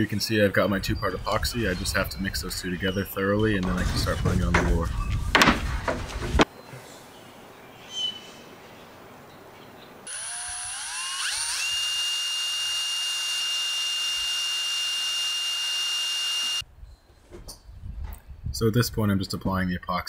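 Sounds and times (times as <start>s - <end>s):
cordless drill motor whine: 10.1s - 16.6s.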